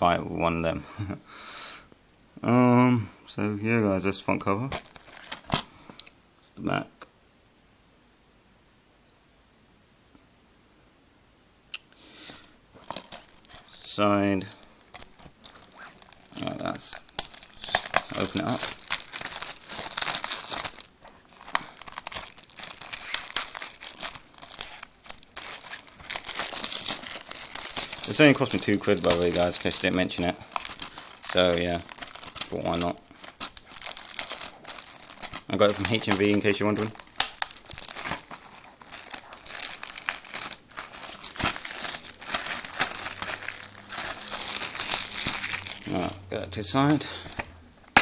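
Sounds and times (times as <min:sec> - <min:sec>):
plastic wrapping crinkling and tearing: 0:04.6 - 0:05.7, 0:12.7 - 0:48.0.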